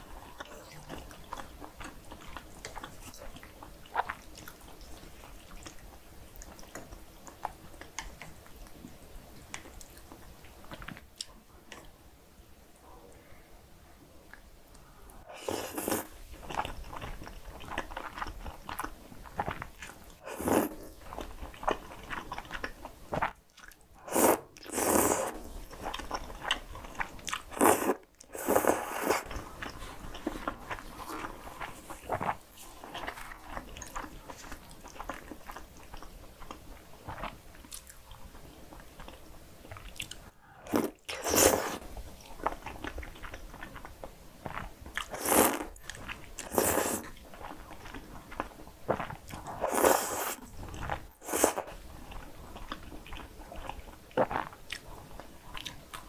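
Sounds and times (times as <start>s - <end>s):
noodles slurped: 24.1s - 25.5s, 27.0s - 33.2s, 45.0s - 45.7s, 48.9s - 51.8s.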